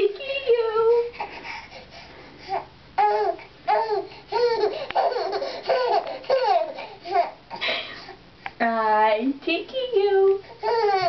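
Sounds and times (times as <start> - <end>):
baby laughing: 2.5 - 8.2, 10.6 - 11.0.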